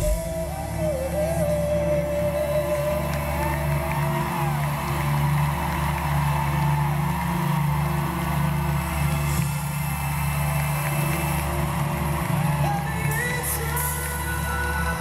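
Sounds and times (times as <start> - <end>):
live band playing a slow ballad: 0.0 - 5.0.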